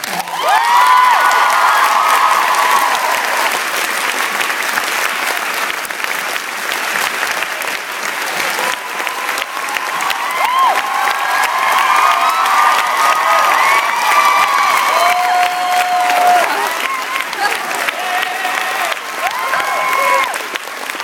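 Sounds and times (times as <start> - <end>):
audience whooping: 0.0 - 3.8, 8.3 - 20.6
audience applauding: 0.0 - 21.0.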